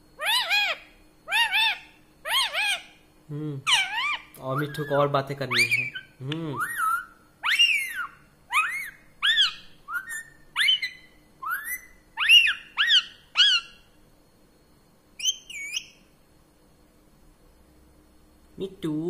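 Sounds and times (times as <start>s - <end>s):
parrot whistled calls: 0.2s - 3.0s, 3.7s - 14.0s, 15.2s - 16.1s.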